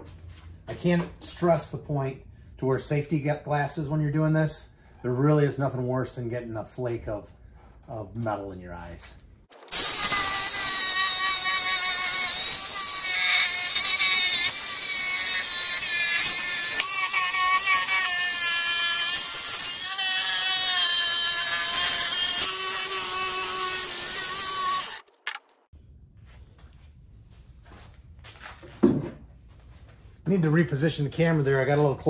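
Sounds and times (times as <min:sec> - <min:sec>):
jigsaw cutting metal band: 0:09.5 - 0:25.3.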